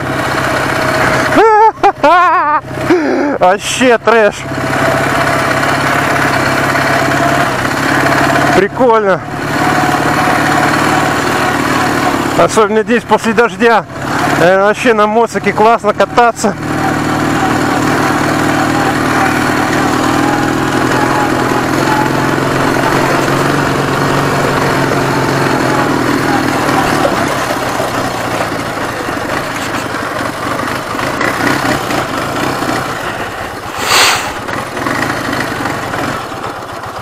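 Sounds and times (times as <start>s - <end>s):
motorcycle engine running: 0.0s - 37.0s
loud rush of noise: 32.1s - 34.8s.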